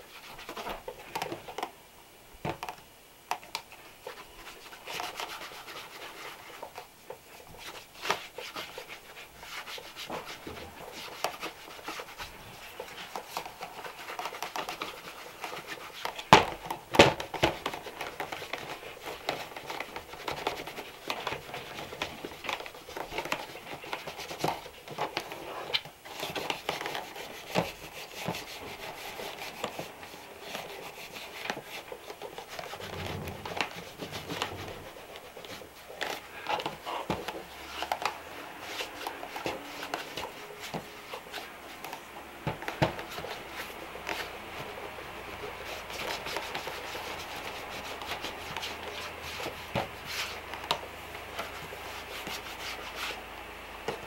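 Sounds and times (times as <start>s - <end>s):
rubbing strokes on leather shoe: 4.1s - 16.2s, 26.4s - 36.0s, 43.0s - 53.3s.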